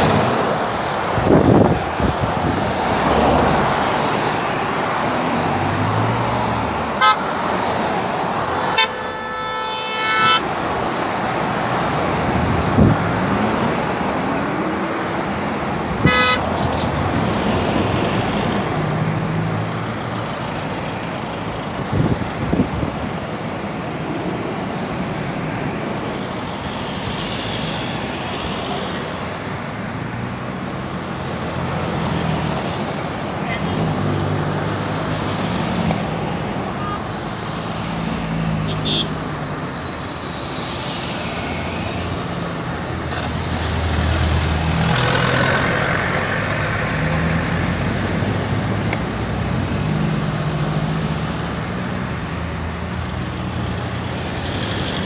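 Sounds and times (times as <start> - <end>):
road traffic: 0.0 - 55.0
vehicle horns honking: 7.0 - 7.4, 8.6 - 10.5, 16.0 - 16.6, 36.8 - 37.1, 38.6 - 41.1.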